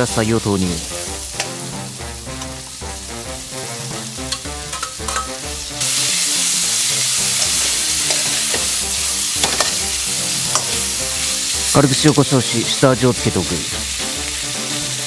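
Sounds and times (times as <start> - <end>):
meat sizzling in hot oil: 0.0 - 15.0
metal ladle scraping a wok: 1.3 - 1.7, 3.8 - 10.9.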